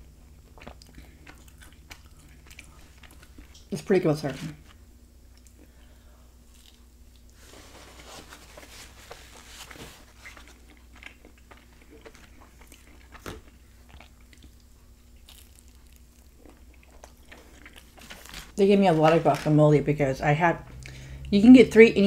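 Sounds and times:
person chewing food: 0.0 - 3.8, 5.3 - 7.4, 8.6 - 18.6
food bite crunch: 10.4 - 18.5.

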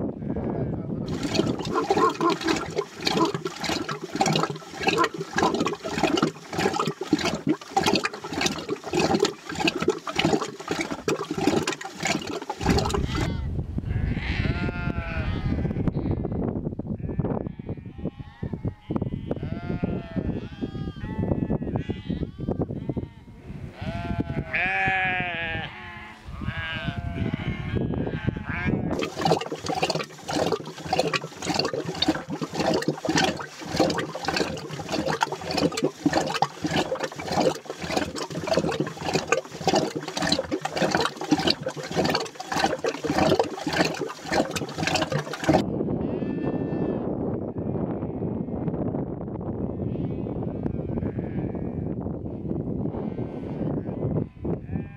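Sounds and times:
churning stick knocking in milk: 1.1 - 13.3, 29.0 - 45.6.

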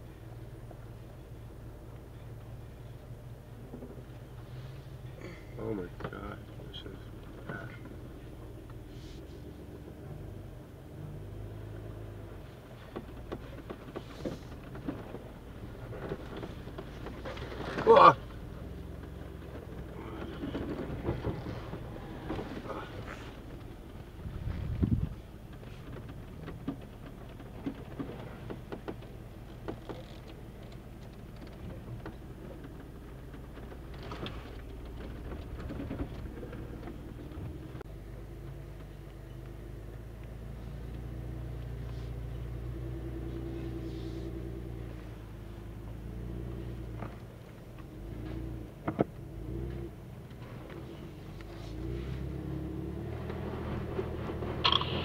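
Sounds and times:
low engine rumble: 0.0 - 55.0
tyres crunching over gravel: 12.8 - 37.9.

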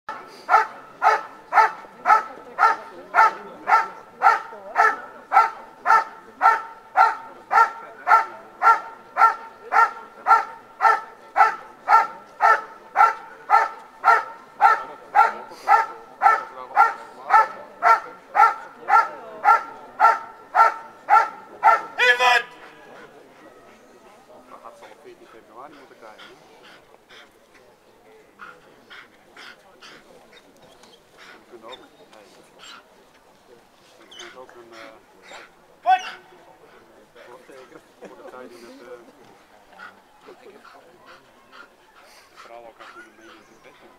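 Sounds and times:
dog barking steadily: 0.4 - 22.8, 34.2 - 36.8.

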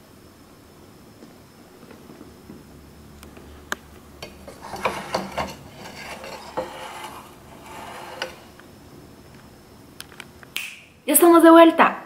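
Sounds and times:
ceramic plates clinking and scraping: 4.2 - 8.6.

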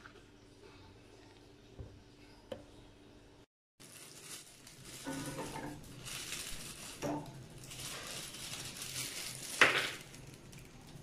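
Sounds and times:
plastic bag rustling: 3.8 - 11.0
dumplings clattering into saucepan: 5.0 - 5.8.

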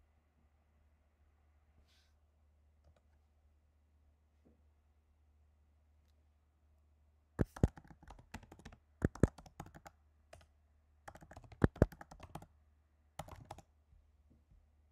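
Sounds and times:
typing on computer keyboard: 7.4 - 10.5, 11.1 - 12.5, 13.2 - 13.7.

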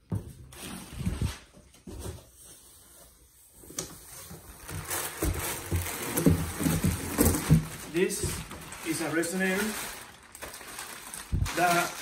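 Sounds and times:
plastic wrapping crinkling: 4.0 - 12.0.

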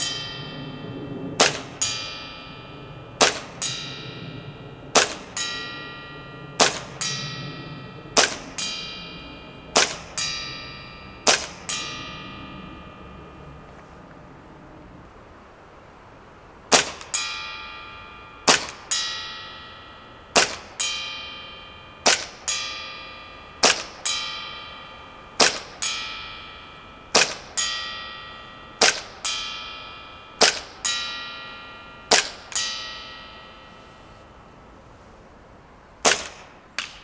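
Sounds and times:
airsoft pistol shots: 1.4 - 1.8, 6.6 - 7.1, 9.8 - 10.2, 20.4 - 20.7, 22.1 - 22.3, 23.6 - 23.9, 25.4 - 25.7, 28.8 - 29.1, 36.0 - 37.0.

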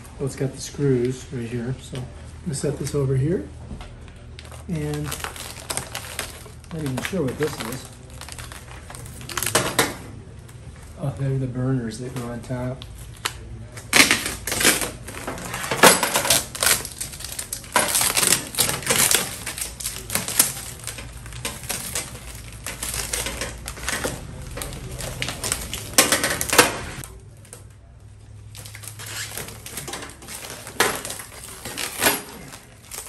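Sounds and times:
plastic wrap crinkling: 4.1 - 11.4, 12.2 - 33.0
packing tape peeling and tearing: 4.4 - 9.9, 12.8 - 27.6, 28.4 - 33.0.

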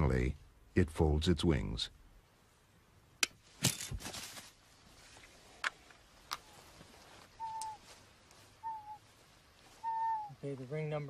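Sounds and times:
bird whistled calls: 7.4 - 7.8, 8.6 - 9.0, 9.8 - 10.4.

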